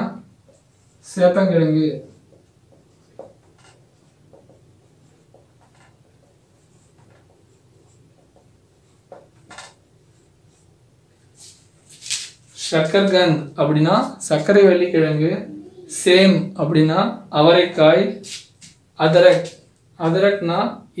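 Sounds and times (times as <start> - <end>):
marker scratching on whiteboard: 0.4 - 1.4, 2.0 - 10.7.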